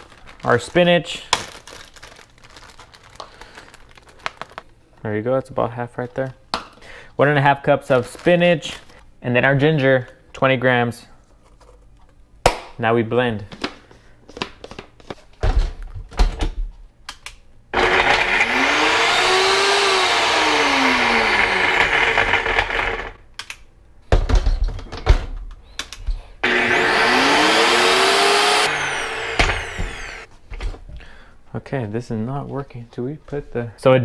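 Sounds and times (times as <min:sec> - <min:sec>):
blender motor running: 0:17.8 - 0:23.2, 0:26.4 - 0:30.3.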